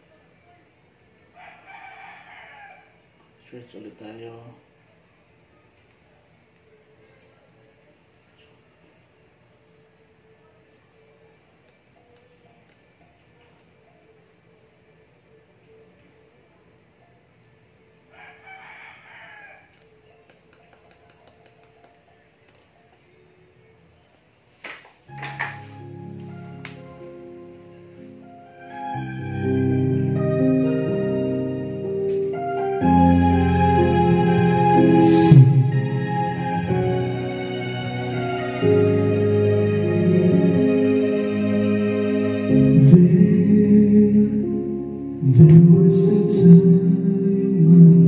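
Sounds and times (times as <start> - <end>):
rooster crowing faintly: 1.2 - 3.2, 18.0 - 22.2
instrumental karaoke music: 25.1 - 48.0.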